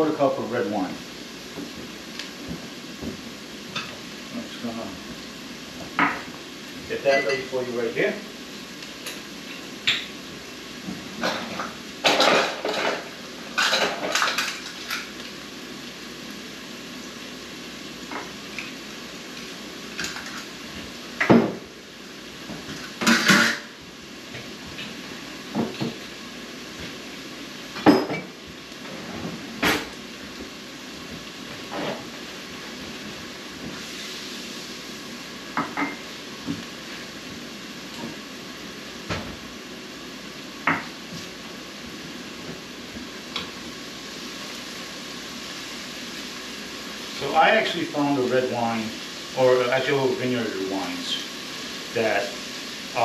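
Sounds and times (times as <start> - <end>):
steady low hiss: 0.0 - 53.0
dishes and utensils clinking: 7.1 - 7.5, 11.2 - 13.0, 13.6 - 15.1, 27.8 - 28.3.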